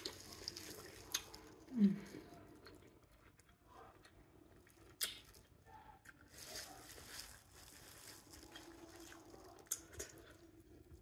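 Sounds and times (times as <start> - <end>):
gloved hand squishing wet food: 0.0 - 11.0
quiet chewing: 0.0 - 11.0.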